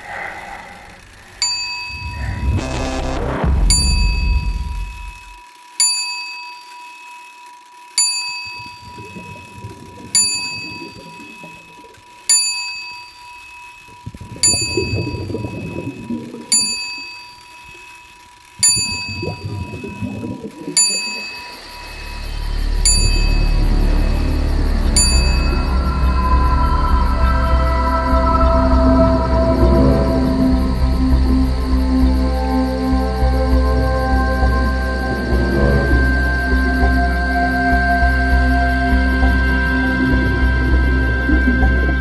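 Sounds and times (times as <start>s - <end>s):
low rumble: 0.0s - 5.4s, 21.6s - 42.0s
steady high tone: 0.0s - 5.6s, 13.1s - 42.0s
high bell-like chime: 22.8s - 23.7s.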